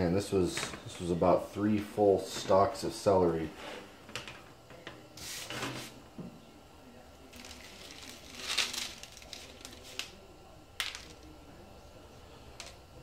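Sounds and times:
dried pieces scattering onto plate: 0:07.3 - 0:10.2, 0:10.8 - 0:11.3
plastic mesh rustling: 0:07.3 - 0:10.2.

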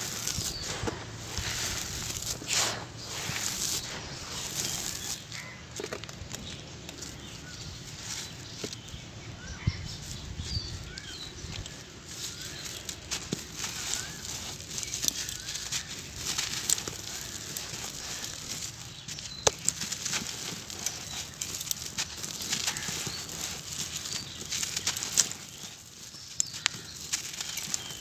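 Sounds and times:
gritty dust pattering down: 0:00.0 - 0:09.0, 0:09.9 - 0:28.0
sand-cement clumps crunching in hands: 0:00.0 - 0:28.0.

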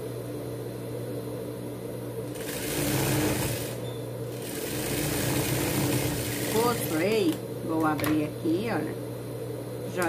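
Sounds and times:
sewing machine stitching: 0:02.3 - 0:07.0.

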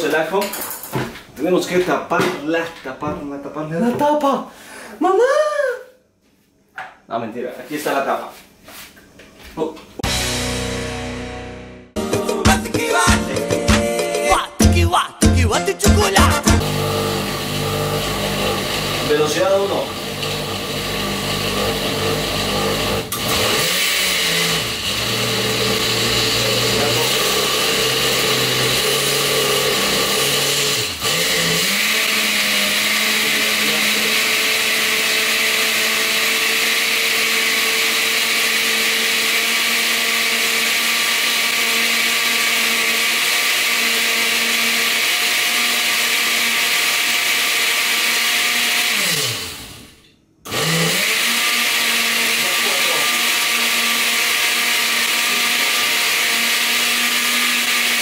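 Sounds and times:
blender running: 0:16.3 - 0:58.0.

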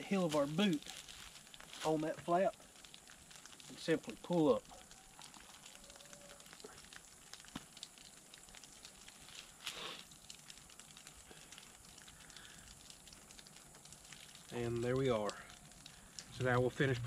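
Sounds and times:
hide crackling and rustling: 0:00.0 - 0:03.7.

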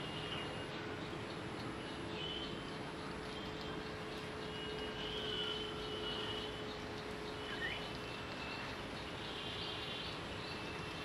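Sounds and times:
bird chirp: 0:05.4 - 0:11.0.

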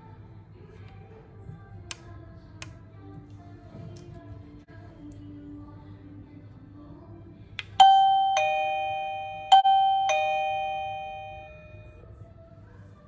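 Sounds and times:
two-note doorbell chime: 0:07.8 - 0:12.0.

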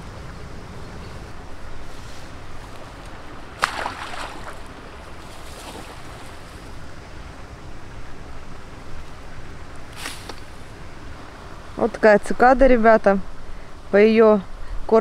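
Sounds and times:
water running off net: 0:02.0 - 0:06.7
net splashing into water: 0:03.5 - 0:06.6.

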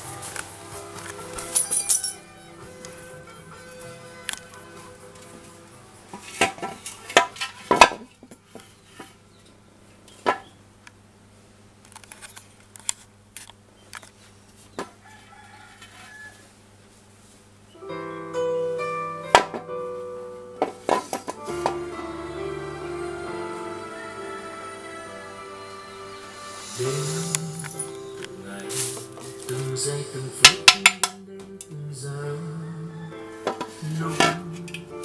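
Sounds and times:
background music: 0:00.0 - 0:07.2, 0:17.8 - 0:35.0
coins clinking in ceramic piggy bank: 0:01.5 - 0:02.2.

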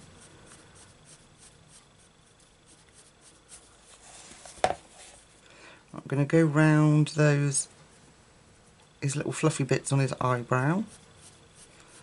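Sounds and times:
pencil scratching on paper: 0:00.0 - 0:03.8, 0:10.8 - 0:12.0.

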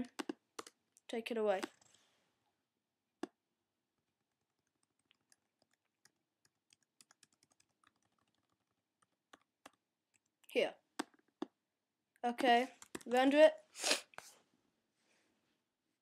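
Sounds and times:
keyboard and mouse clicks: 0:00.0 - 0:00.8, 0:04.2 - 0:10.3, 0:11.0 - 0:11.6, 0:12.4 - 0:13.2.

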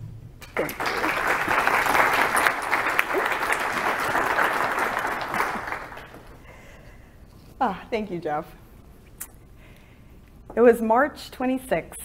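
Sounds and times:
audience applauding: 0:00.4 - 0:06.5.

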